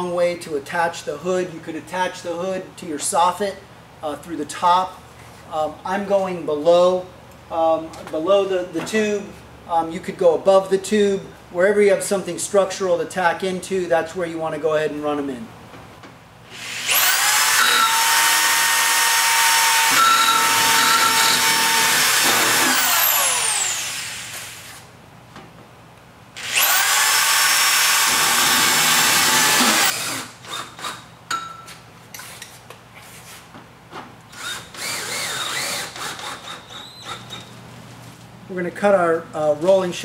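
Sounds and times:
power drill driving screws: 16.5 - 24.8, 26.4 - 31.0, 34.3 - 37.5.

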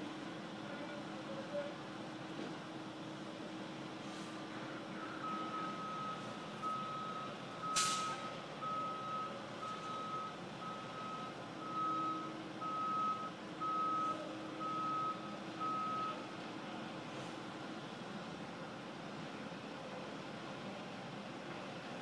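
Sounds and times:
truck reversing alarm beeping: 4.8 - 16.4.

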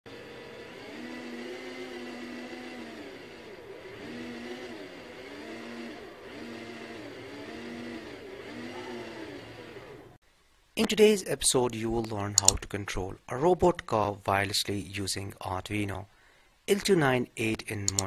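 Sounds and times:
small gear motors whining: 0.1 - 10.2.

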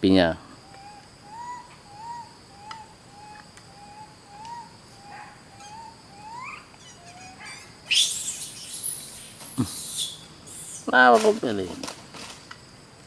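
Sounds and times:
high insect drone: 0.0 - 13.0
baby monkey coo calls: 0.6 - 10.9.

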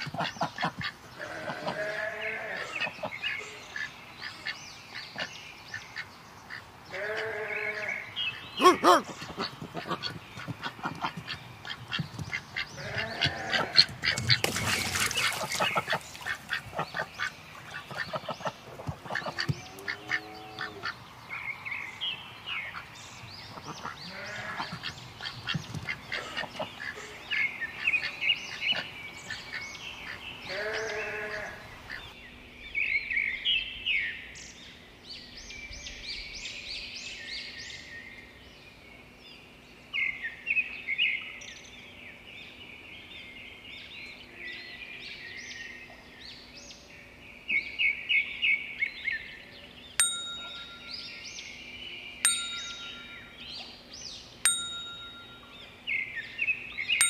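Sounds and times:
bird calls: 0.0 - 39.2
ducks quacking: 8.6 - 21.0, 23.5 - 27.2
high chirping calls: 50.0 - 57.0.

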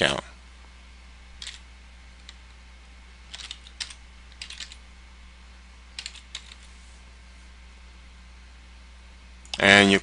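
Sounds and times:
low hum: 0.0 - 10.0
typing on a keyboard: 1.4 - 1.6, 3.3 - 4.8, 6.0 - 6.6.

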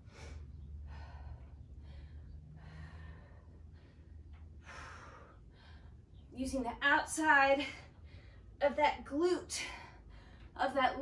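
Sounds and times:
woman breathing hard: 0.0 - 6.2, 7.6 - 8.6, 9.6 - 10.6.

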